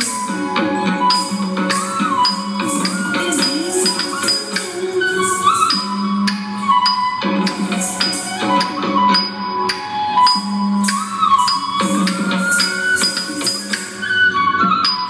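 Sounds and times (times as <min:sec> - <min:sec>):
brisk percussion strokes: 0:00.0 - 0:14.1
melody line: 0:01.0 - 0:13.8.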